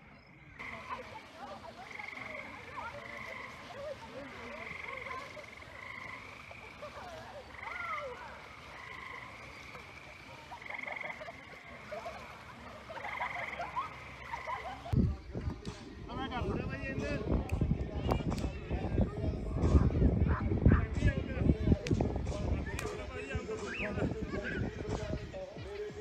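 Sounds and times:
frogs calling in pulsed trills: 0.2 - 15.0.

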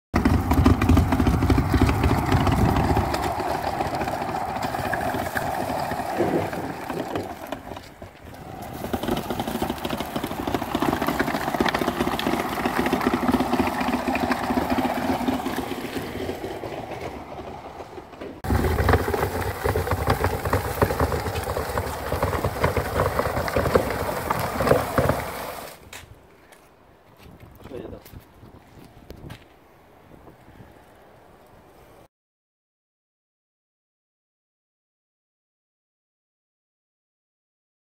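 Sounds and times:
push sweeper brushes clattering: 0.2 - 25.8.

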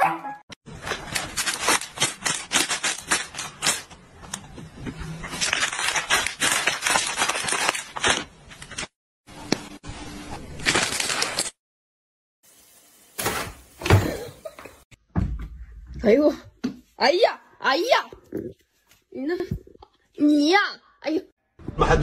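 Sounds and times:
plastic packaging crinkling: 0.7 - 4.0, 5.2 - 8.9, 10.6 - 11.6.

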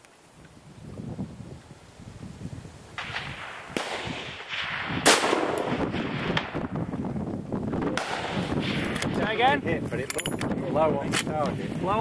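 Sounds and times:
rifle shot with echo: 3.0 - 6.7, 7.8 - 9.1.

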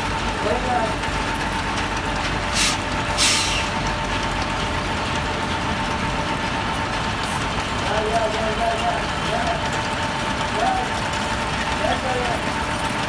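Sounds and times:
engine whine: 0.0 - 13.0
truck diesel engine running: 0.0 - 13.0
compressed air hisses: 2.5 - 3.7.

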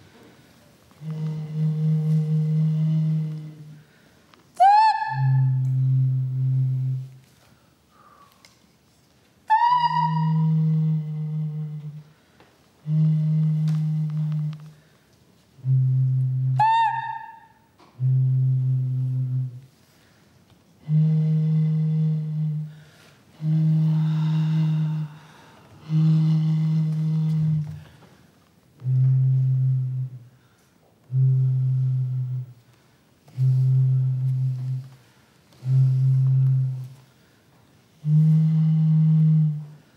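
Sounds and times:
low hollow gourd hooting: 1.0 - 3.8, 4.6 - 7.2, 9.5 - 12.1, 12.8 - 14.7, 15.6 - 19.7, 20.8 - 22.8, 23.4 - 27.9, 31.1 - 32.5, 33.4 - 35.0, 35.6 - 37.0, 38.0 - 39.8.

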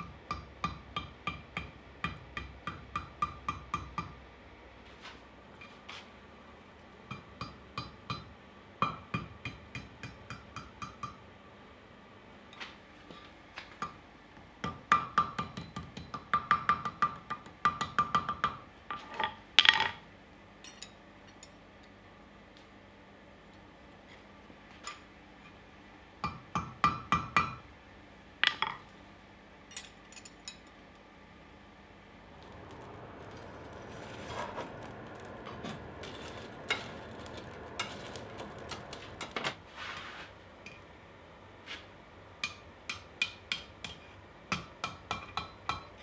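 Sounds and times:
hammer striking steel on anvil: 0.0 - 4.2, 7.1 - 11.2, 14.6 - 18.6, 26.2 - 27.6, 32.7 - 39.4, 42.4 - 46.0.

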